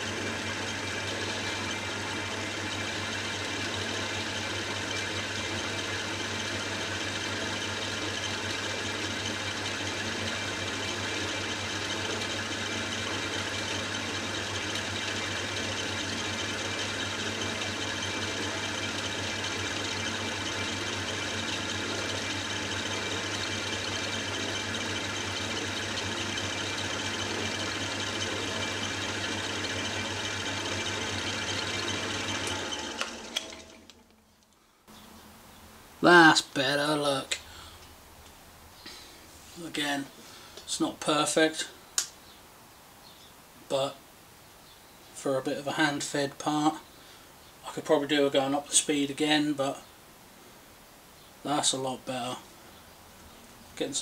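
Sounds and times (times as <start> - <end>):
metal lathe running: 0.0 - 34.0.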